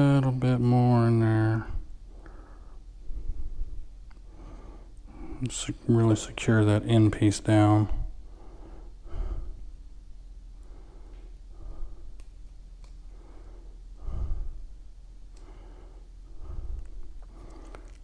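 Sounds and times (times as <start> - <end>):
man breathing heavily: 1.6 - 5.8, 7.9 - 18.0.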